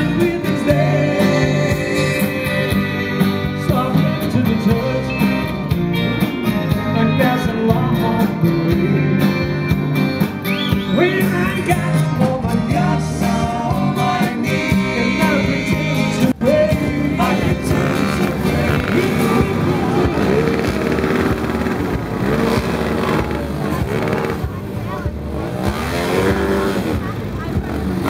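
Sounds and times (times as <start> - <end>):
person singing: 0.0 - 5.6, 6.7 - 9.7, 10.9 - 21.3
country band playing: 0.0 - 28.0.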